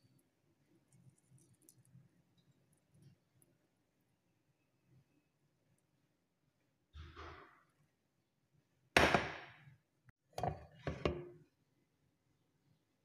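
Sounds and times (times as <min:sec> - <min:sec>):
kitchenware knocking: 0:10.4 - 0:11.3.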